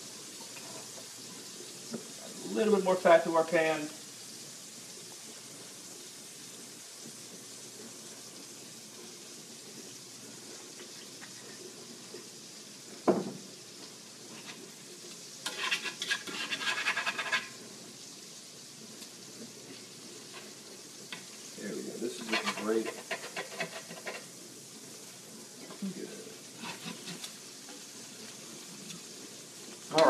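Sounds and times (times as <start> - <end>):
patties sizzling in a skillet: 0.0 - 30.0
tongs clinking and scraping: 15.4 - 17.6, 22.1 - 24.3, 26.6 - 27.4.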